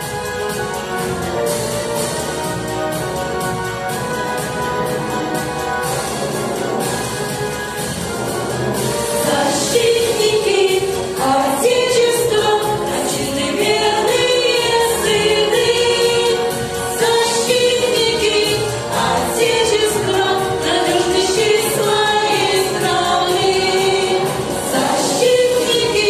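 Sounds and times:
instrumental accompaniment: 0:00.0 - 0:26.0
vocal ensemble singing in chorus: 0:08.8 - 0:26.0.

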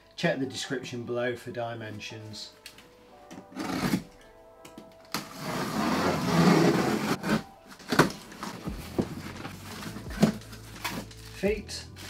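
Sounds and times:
packaging scraping: 0:03.4 - 0:04.2, 0:05.1 - 0:12.0
packaging rustle: 0:06.6 - 0:11.4.

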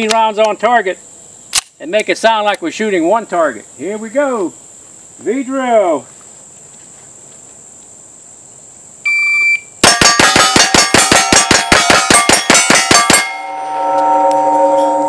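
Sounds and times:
shot timer beep: 0:09.1 - 0:09.7
steady ringing tone: 0:09.8 - 0:15.0
steel targets clanging: 0:09.8 - 0:15.0.

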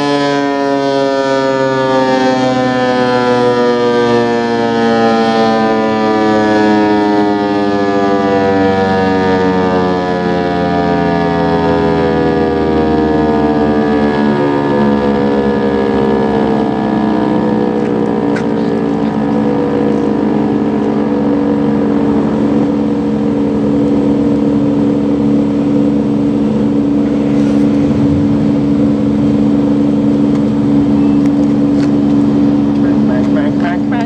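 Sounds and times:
siren winding down: 0:00.0 - 0:33.1
steady low hum: 0:14.0 - 0:34.0.

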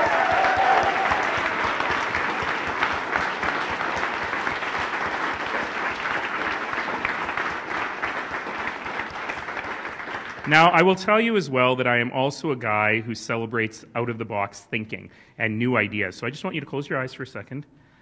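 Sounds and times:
audience cheering: 0:00.0 - 0:10.8
audience applauding: 0:00.0 - 0:10.9.

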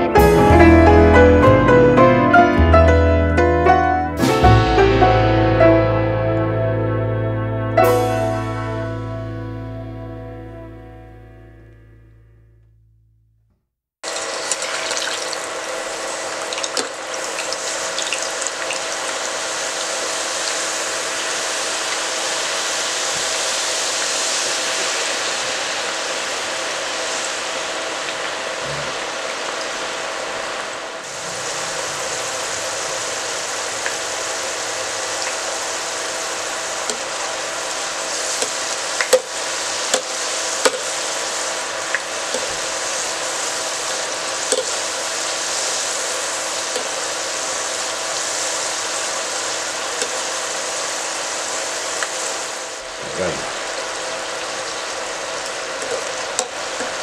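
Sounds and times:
oil sizzling while deep-frying: 0:14.0 - 0:57.0.

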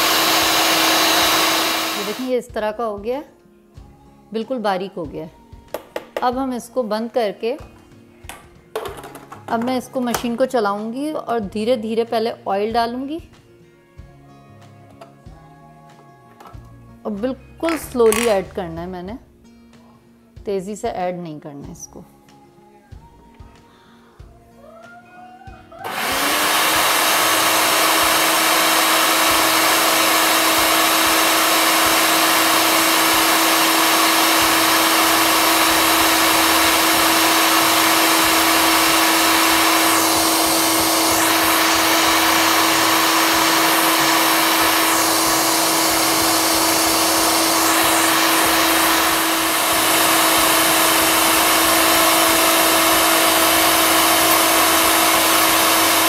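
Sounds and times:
food processor motor running: 0:00.0 - 0:02.3, 0:25.8 - 0:56.0.

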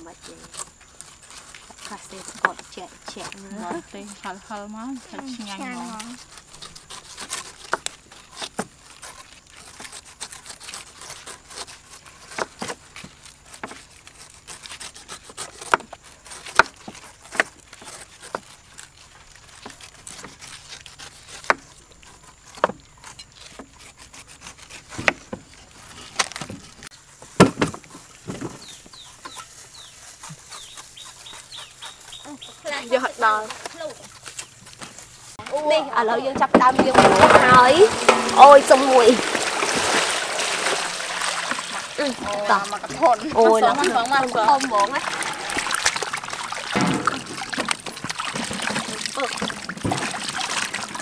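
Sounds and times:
cleavers cutting pineapples: 0:00.0 - 0:51.0
knocks on wooden chopping boards: 0:27.4 - 0:28.6.

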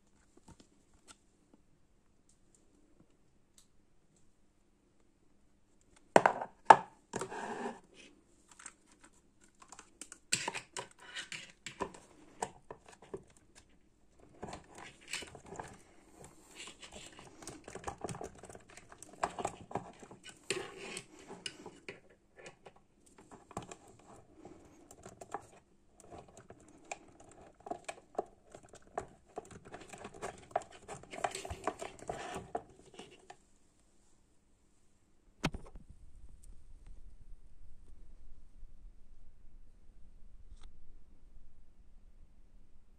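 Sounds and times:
plastic parts clicking and scraping: 0:06.0 - 0:33.4.

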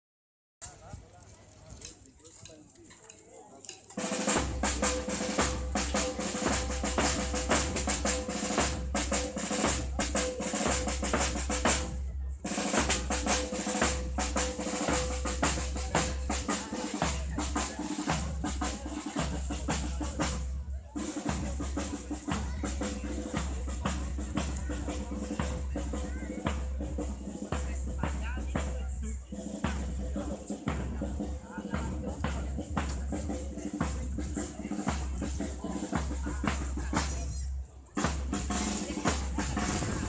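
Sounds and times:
snare drum rolls: 0:04.0 - 0:37.4, 0:38.0 - 0:40.0
bass drum beats: 0:04.0 - 0:40.0.

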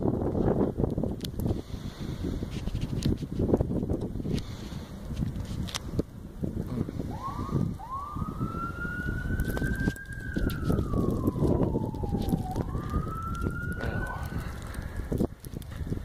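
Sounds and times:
wind buffeting microphone: 0:00.0 - 0:16.0
emergency vehicle siren wailing: 0:06.9 - 0:15.6.

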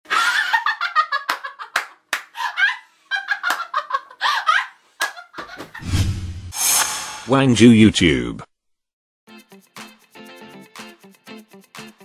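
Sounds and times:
woman laughing loudly: 0:00.1 - 0:05.8.

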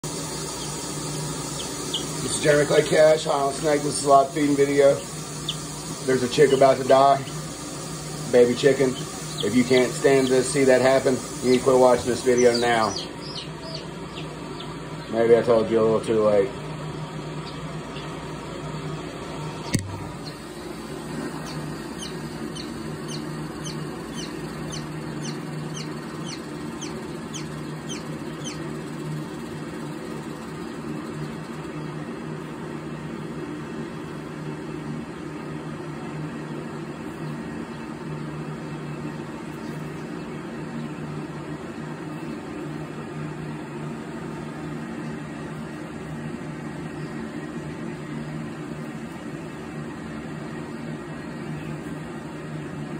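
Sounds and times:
baby chick peeping: 0:00.0 - 0:32.2, 0:36.3 - 0:42.6
steady low hum: 0:00.0 - 0:52.9.

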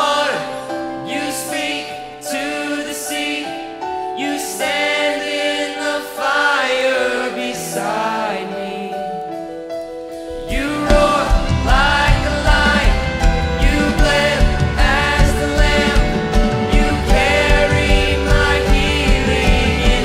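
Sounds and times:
man singing: 0:00.0 - 0:03.6, 0:10.3 - 0:20.0
piano: 0:00.0 - 0:20.0
drums: 0:10.1 - 0:20.0.

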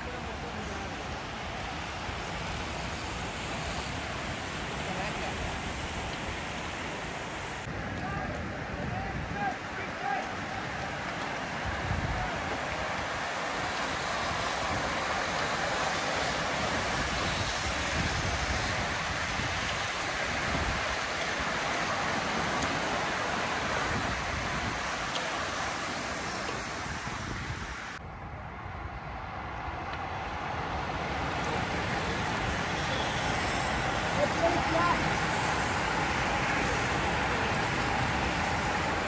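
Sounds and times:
cyclists' tyres on tarmac: 0:00.0 - 0:39.0
wind on microphone: 0:10.7 - 0:36.9.

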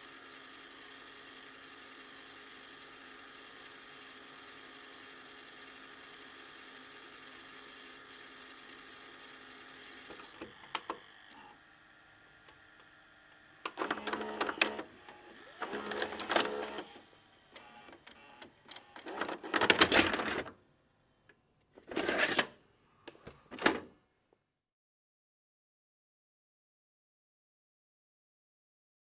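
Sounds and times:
video recorder hum: 0:07.0 - 0:20.6
tape mechanism whirring: 0:12.4 - 0:20.6
video recorder clicks: 0:13.7 - 0:14.9.

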